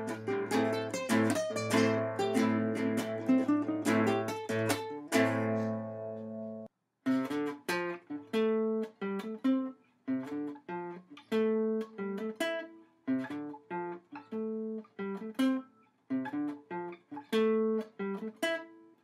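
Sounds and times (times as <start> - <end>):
plucked ukulele riff: 0.0 - 18.8
ukulele chord strummed: 0.0 - 18.8.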